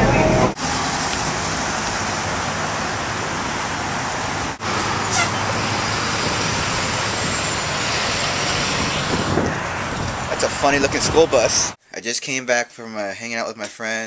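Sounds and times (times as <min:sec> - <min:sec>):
bus driving past: 0:00.0 - 0:10.4
street traffic noise: 0:00.0 - 0:11.8.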